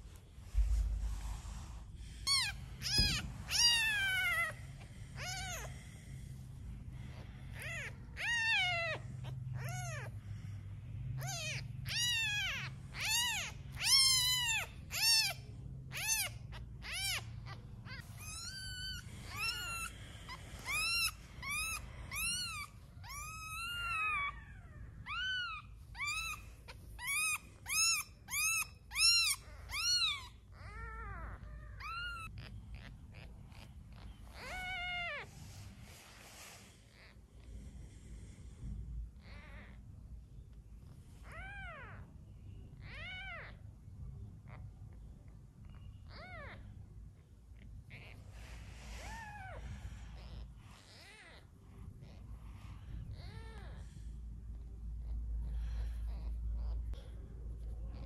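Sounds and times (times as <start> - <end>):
kitten mewing: 2.2 - 6.2, 6.9 - 10.2, 11.2 - 35.3, 54.6 - 58.0.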